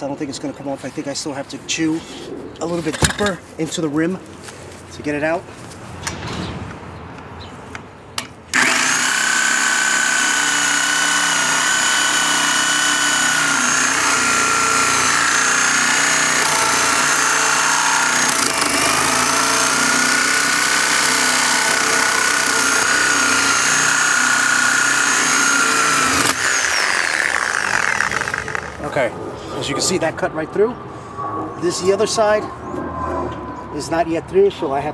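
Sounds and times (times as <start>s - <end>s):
reciprocating saw cutting: 8.5s - 28.9s.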